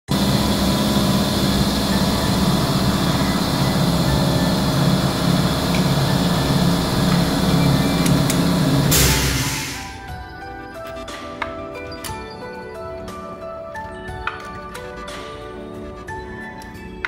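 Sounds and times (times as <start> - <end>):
car engine idling: 0.1 - 10.0.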